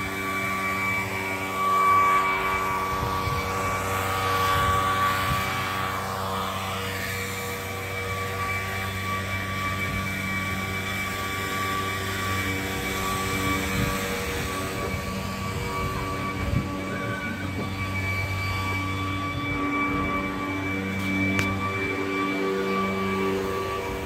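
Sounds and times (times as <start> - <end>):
leaf blower running: 0.0 - 24.0.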